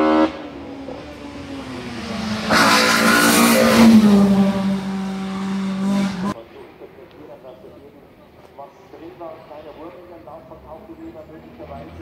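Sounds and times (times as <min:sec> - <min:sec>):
race car engine passing by: 0:00.0 - 0:06.4.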